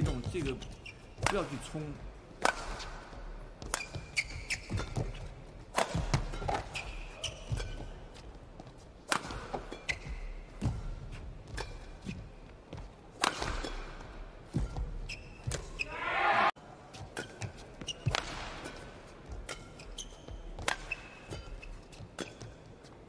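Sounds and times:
shoes squeaking on court: 0.0s - 16.0s, 16.9s - 23.0s
rackets striking shuttlecock: 1.2s - 1.6s, 2.4s - 3.0s, 3.6s - 7.9s, 9.0s - 10.8s, 13.2s - 15.7s, 17.0s - 20.0s, 20.6s - 22.5s.

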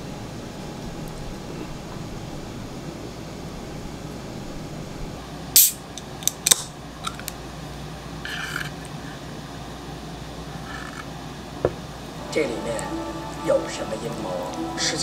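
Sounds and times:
soda can opening hiss: 5.6s - 6.7s.

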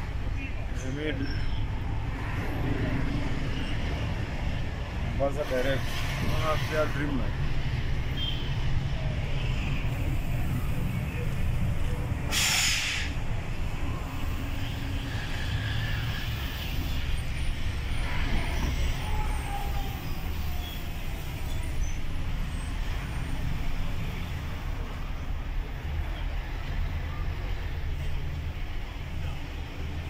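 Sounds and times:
truck engine drone: 1.5s - 30.0s
tyre and traffic hiss: 5.2s - 7.6s, 12.2s - 19.0s.

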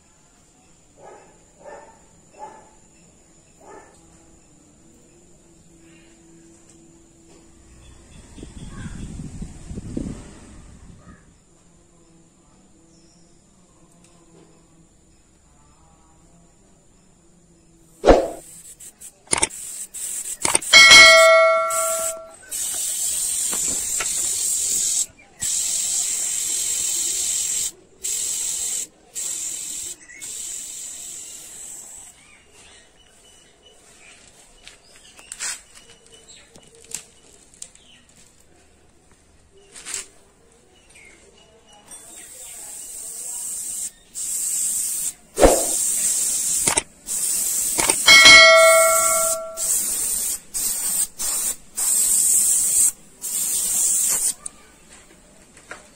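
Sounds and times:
airbrush spraying hiss: 18.0s - 32.2s, 42.5s - 54.4s
bell-like metallic ring: 20.7s - 22.4s, 48.1s - 49.8s.

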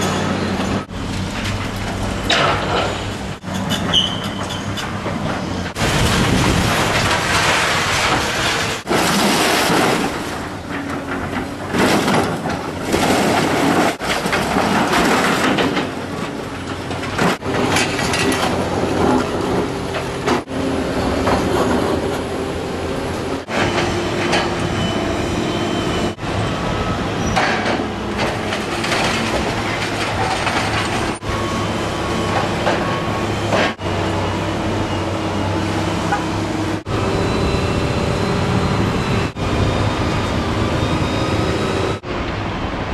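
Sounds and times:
metal squealing and clanking: 0.0s - 22.1s, 23.4s - 35.2s
excavator engine drone: 0.0s - 42.9s
debris crashing and scraping: 1.0s - 20.5s, 27.4s - 31.3s.

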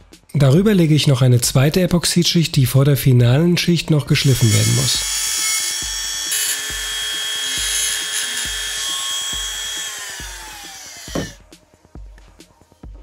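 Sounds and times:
rotary tool whining: 4.2s - 11.4s.

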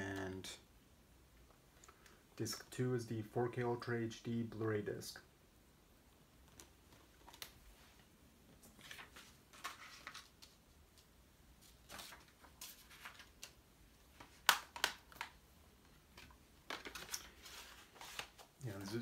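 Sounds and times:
plastic case rustling and clicking: 14.2s - 15.4s, 16.1s - 19.0s.

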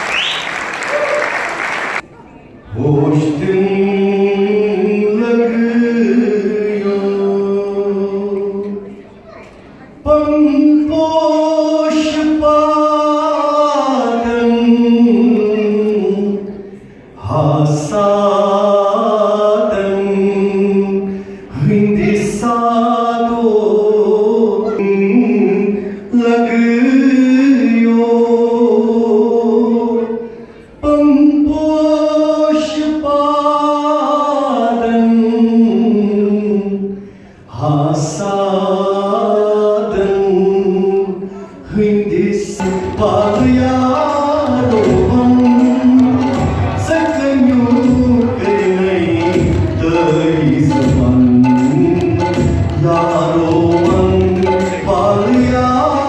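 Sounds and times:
man singing into a microphone: 2.6s - 9.0s, 9.8s - 56.0s.

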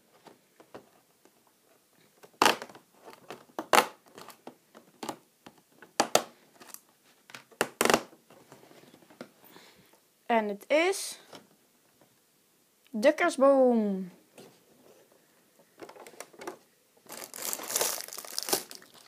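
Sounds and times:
cardboard tearing and crinkling: 17.1s - 19.0s.

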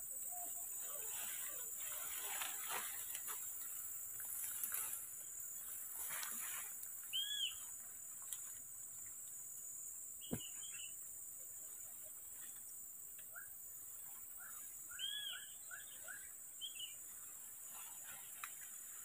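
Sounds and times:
leaves rustling in undergrowth: 0.6s - 8.6s, 17.0s - 19.0s
bird whistled call: 7.1s - 7.6s, 14.4s - 16.9s.

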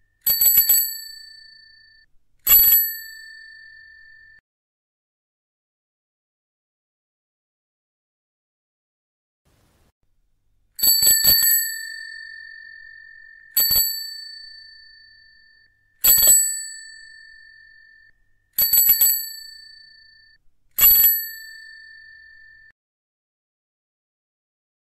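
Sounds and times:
bicycle bell ringing: 0.2s - 4.4s, 10.8s - 22.7s.

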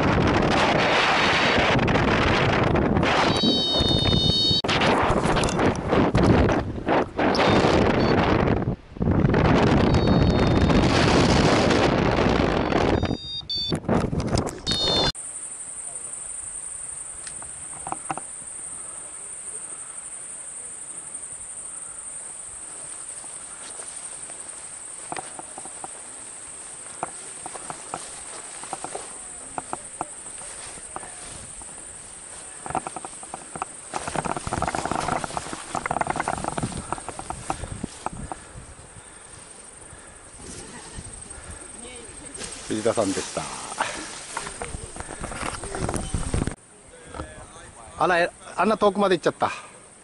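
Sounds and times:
wind buffeting microphone: 0.0s - 15.1s, 26.9s - 46.6s
faint voices: 26.8s - 48.5s
faint clicks: 26.9s - 31.8s.

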